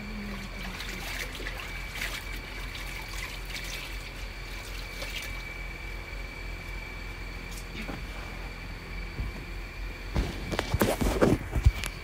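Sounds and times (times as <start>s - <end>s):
water trickling and dripping: 0.1s - 5.6s
water splashes: 0.3s - 5.5s.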